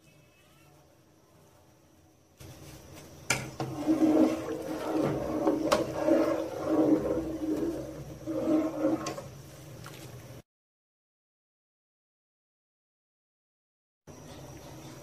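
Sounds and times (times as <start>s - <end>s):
rice boiling and bubbling: 1.2s - 10.4s.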